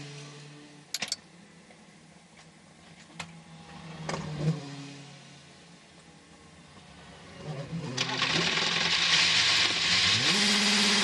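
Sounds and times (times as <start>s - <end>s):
race car engine: 2.9s - 11.0s.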